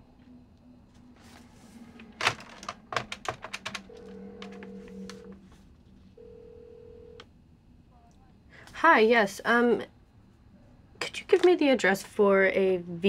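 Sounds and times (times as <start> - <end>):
phone ringing tone: 3.8 - 5.5, 6.2 - 7.2.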